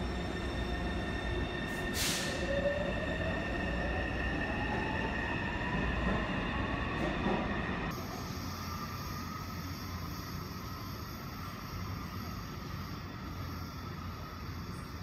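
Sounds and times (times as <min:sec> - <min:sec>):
air hiss: 0:01.9 - 0:02.5.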